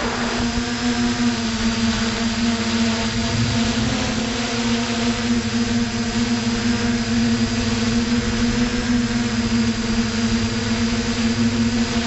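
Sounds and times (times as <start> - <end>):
drone propellers humming: 0.0 - 12.0
high-pitched motor whine: 0.0 - 12.0
wind hiss: 0.0 - 12.0.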